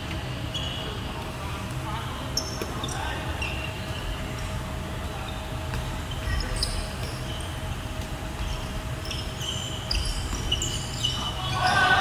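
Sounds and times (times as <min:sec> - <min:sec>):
shoe squeaks: 0:00.4 - 0:01.0, 0:02.4 - 0:04.3, 0:05.2 - 0:07.8, 0:08.4 - 0:12.0.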